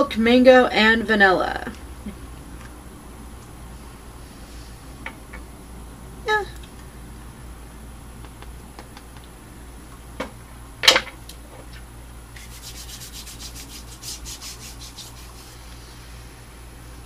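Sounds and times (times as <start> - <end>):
hands rubbing lotion: 12.4 - 15.8.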